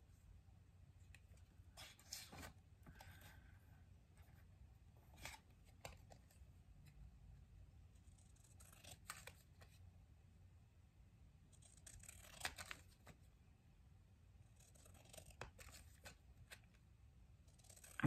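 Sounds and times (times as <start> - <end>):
scissors snipping paper: 11.6 - 13.1, 14.6 - 16.6, 17.4 - 18.0.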